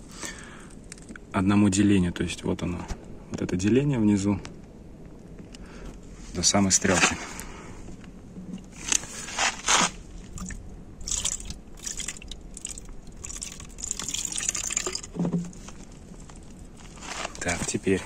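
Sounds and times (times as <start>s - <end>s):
liquid splashing and gurgling: 10.3s - 15.7s.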